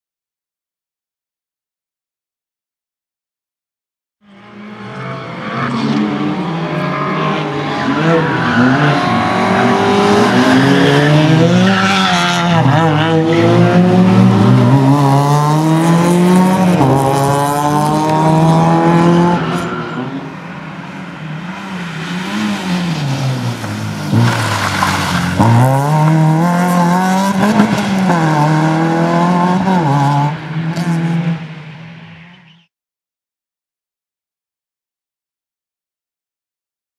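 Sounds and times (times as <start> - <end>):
rally car engine revving: 4.2 - 20.2, 21.4 - 31.5.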